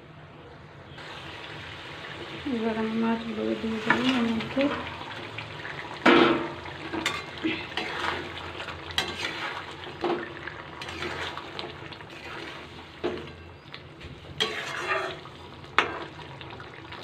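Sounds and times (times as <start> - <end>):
gravy sizzling: 1.0 - 17.0
spatula scraping metal pan: 6.1 - 8.4, 9.0 - 10.1, 10.8 - 11.4, 14.4 - 16.0.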